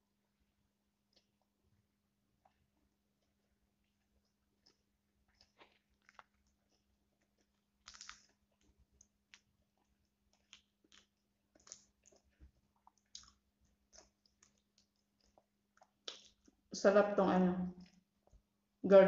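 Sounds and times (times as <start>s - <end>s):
person chewing: 2.4s - 16.7s
mouth clicks and smacks: 4.6s - 16.6s.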